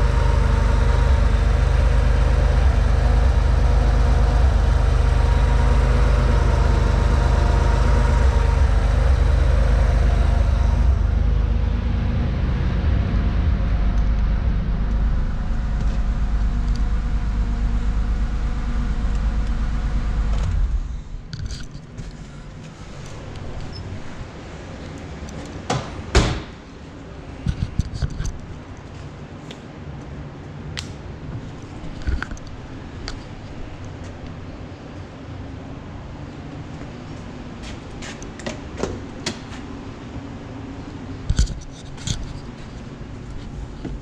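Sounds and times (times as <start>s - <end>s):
car engine idling: 0.0s - 26.8s
car door shutting: 25.7s - 26.6s.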